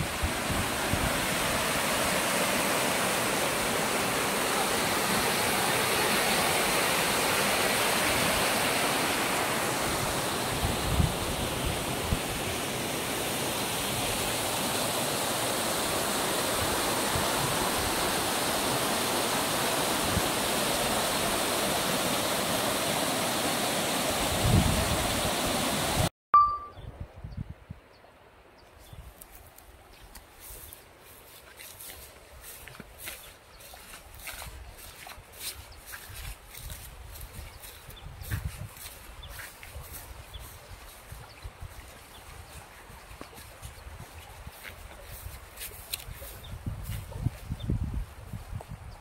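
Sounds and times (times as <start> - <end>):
stream rushing over rocks: 0.0 - 26.1.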